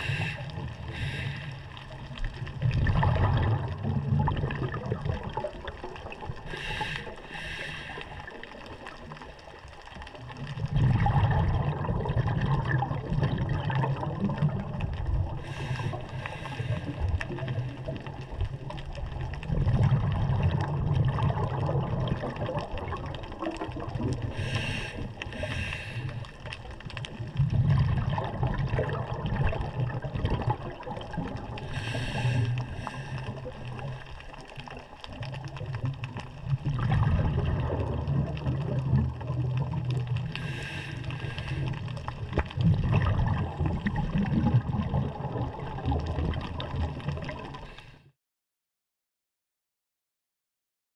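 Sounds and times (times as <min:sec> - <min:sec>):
hissing regulator inhalations: 0:00.0 - 0:01.8, 0:06.5 - 0:08.3, 0:15.4 - 0:17.0, 0:24.4 - 0:26.2, 0:31.6 - 0:33.4, 0:40.4 - 0:41.8
bubbling exhalations: 0:00.0 - 0:08.9, 0:10.5 - 0:18.6, 0:19.4 - 0:26.4, 0:27.2 - 0:47.8.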